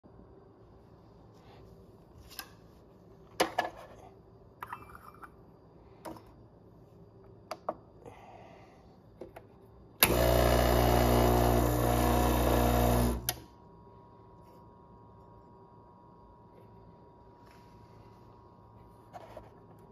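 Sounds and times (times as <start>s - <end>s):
pump switching off click: 10.0s - 10.4s
espresso machine pump buzzing: 10.0s - 13.4s.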